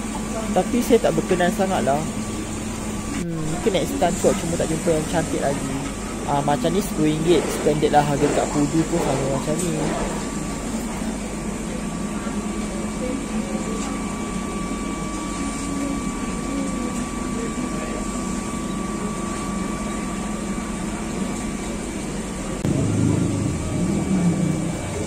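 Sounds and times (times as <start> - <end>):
machine hum with high whine: 0.0 - 25.0
low rumble: 22.6 - 25.0.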